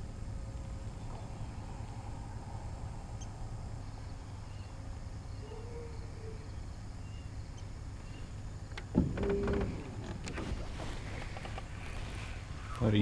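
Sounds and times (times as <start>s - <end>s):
steady low rumble: 0.0s - 5.4s.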